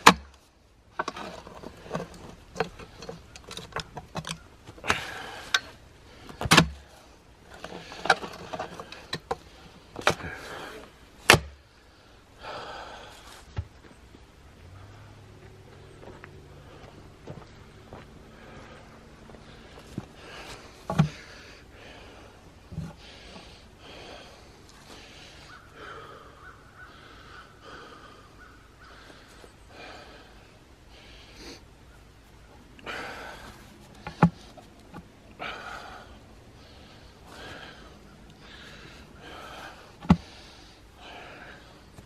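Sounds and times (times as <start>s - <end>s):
person breathing hard: 4.7s - 11.0s, 11.6s - 13.6s, 16.6s - 31.7s, 32.8s - 34.7s, 35.3s - 42.0s.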